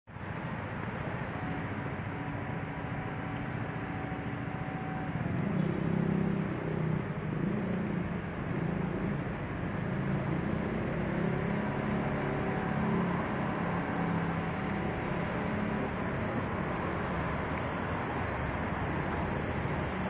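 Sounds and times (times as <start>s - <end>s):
city street traffic: 0.1s - 20.0s
vehicle engine humming: 0.1s - 20.0s.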